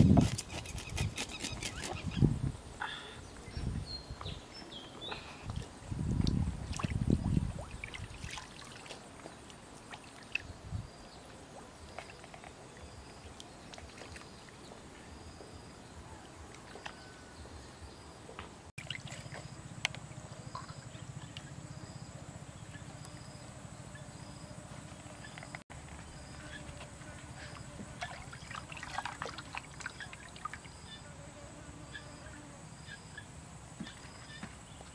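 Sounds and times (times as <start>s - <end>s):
water dribbling: 18.8s - 19.6s, 28.0s - 30.6s.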